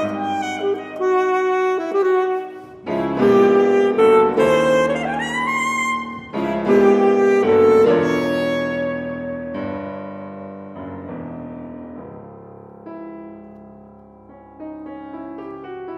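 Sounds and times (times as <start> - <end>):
saxophone: 0.0 - 10.1
grand piano: 0.0 - 15.9.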